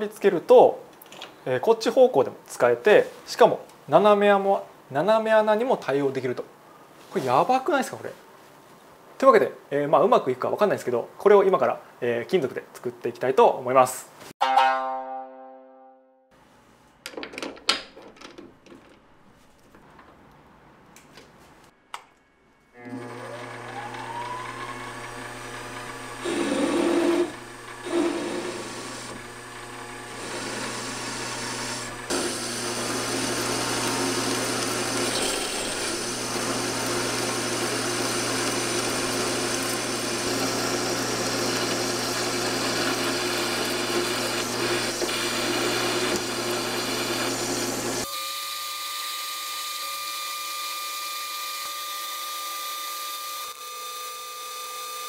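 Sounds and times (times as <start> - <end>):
lathe motor hum: 22.8 - 48.0
metal cutting scraping: 26.0 - 42.9.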